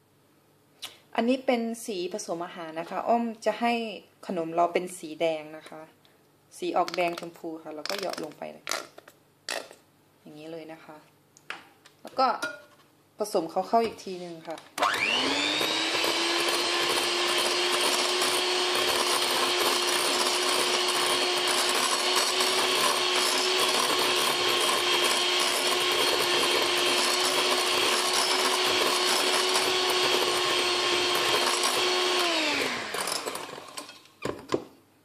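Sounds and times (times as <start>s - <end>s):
electric hand mixer whine: 14.8s - 34.0s
beaters whisking in glass bowl: 15.2s - 33.7s.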